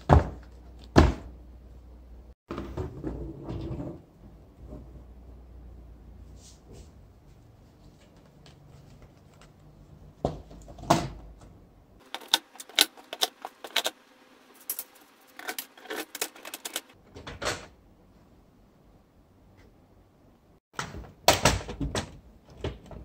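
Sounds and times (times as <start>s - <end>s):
plastic parts clicking and clattering: 12.0s - 14.0s, 14.6s - 17.8s.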